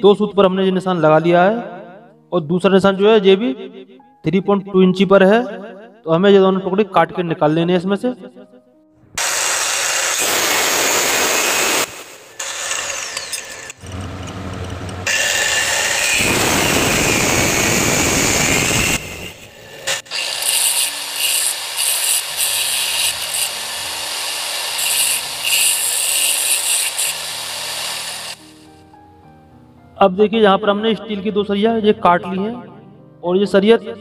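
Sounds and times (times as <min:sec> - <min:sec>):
cut-off saw cutting steel: 0:09.2 - 0:28.7.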